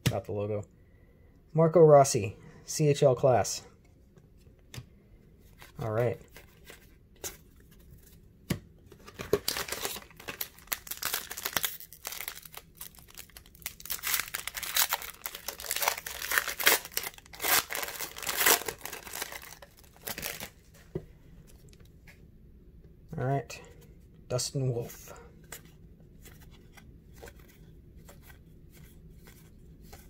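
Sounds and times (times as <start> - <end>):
foil wrapper crinkling and tearing: 9.2 - 20.5.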